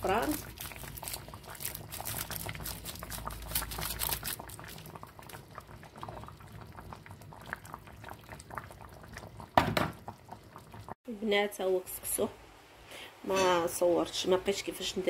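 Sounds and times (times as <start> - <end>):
broth boiling and bubbling: 0.0 - 11.0.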